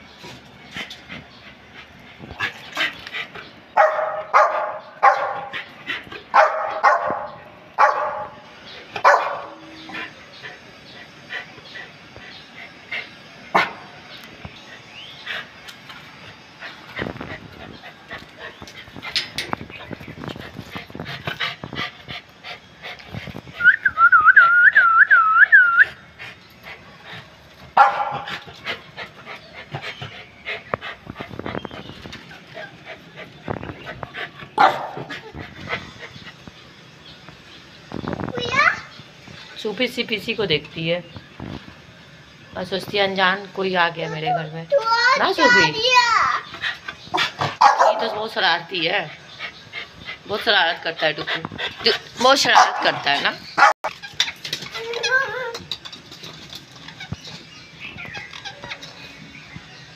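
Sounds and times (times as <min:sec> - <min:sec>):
small dog barking: 0:03.8 - 0:05.5, 0:06.3 - 0:08.3, 0:09.0 - 0:09.5, 0:27.8 - 0:28.3, 0:34.6 - 0:35.1, 0:47.6 - 0:48.2, 0:52.5 - 0:53.0
whistled notes: 0:23.6 - 0:25.9.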